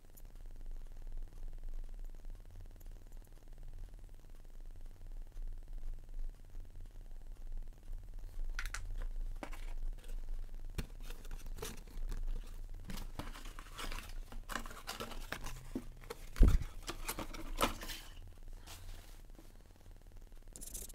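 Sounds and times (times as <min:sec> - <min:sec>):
cardboard and plastic rustling: 0:08.6 - 0:19.6
scattered clicks: 0:20.4 - 0:20.9.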